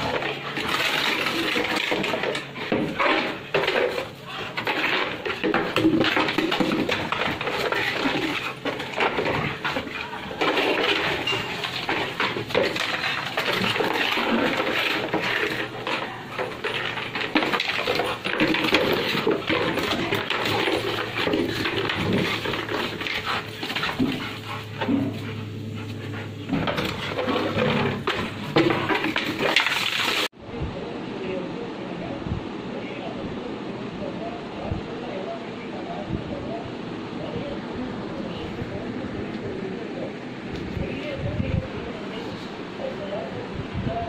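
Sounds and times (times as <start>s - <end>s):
plastic container scraping on concrete: 0.0s - 30.3s.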